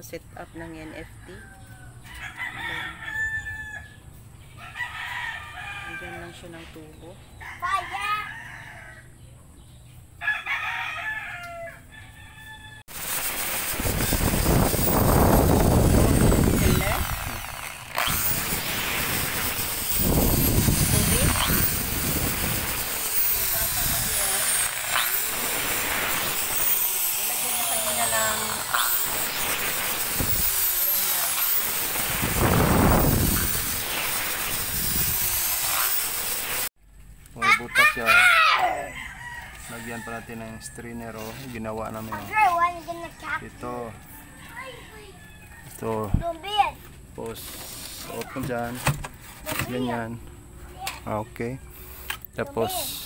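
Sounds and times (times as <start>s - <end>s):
rooster crowing: 0.8s - 4.0s, 4.6s - 6.5s, 7.4s - 9.2s, 10.2s - 12.9s, 38.5s - 41.6s, 43.2s - 46.0s
electric drill boring into pipe: 12.9s - 36.7s.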